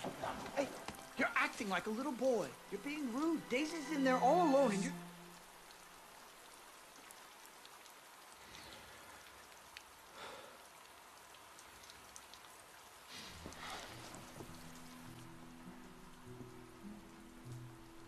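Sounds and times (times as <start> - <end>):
low music: 0.0 - 5.8, 13.4 - 18.0
faint steady rain: 0.0 - 18.0
water drips ticking: 0.0 - 18.0.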